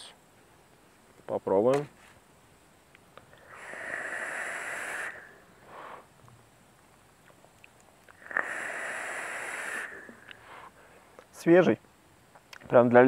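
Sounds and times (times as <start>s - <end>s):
vape draw hiss with high tone: 3.2s - 6.1s, 8.1s - 10.8s.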